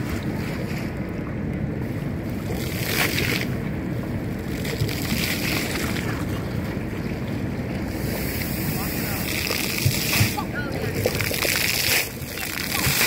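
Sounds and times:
wind on microphone: 0:00.0 - 0:13.0
fountain water rushing and hissing: 0:04.5 - 0:06.1, 0:07.8 - 0:13.0.

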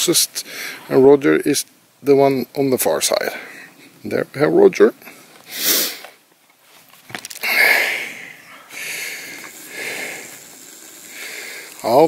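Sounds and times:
person breathing and sniffing: 0:05.0 - 0:06.2, 0:07.4 - 0:12.0.

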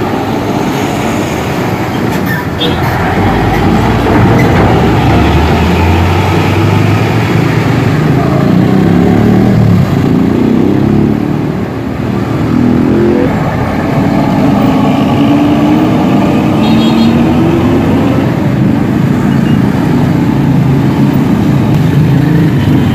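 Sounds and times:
dump truck rumbling past: 0:00.0 - 0:10.1
motorcycles accelerating by: 0:04.7 - 0:22.9.

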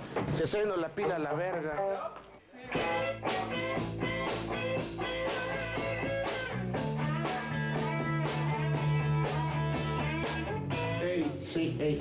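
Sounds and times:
strummed guitar chords: 0:02.7 - 0:11.5
steady drum beat: 0:02.8 - 0:11.4.

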